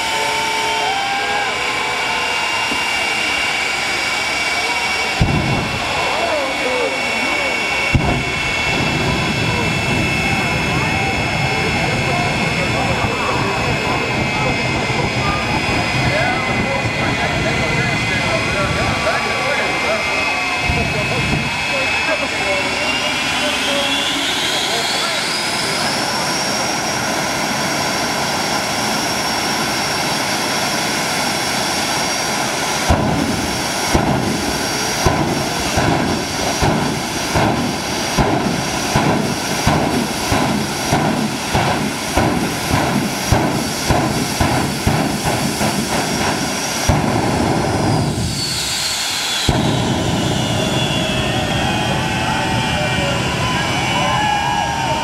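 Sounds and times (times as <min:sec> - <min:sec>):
jet engines whining: 0:00.0 - 0:55.0
afterburner whooshing bursts: 0:05.1 - 0:14.1, 0:31.9 - 0:52.2.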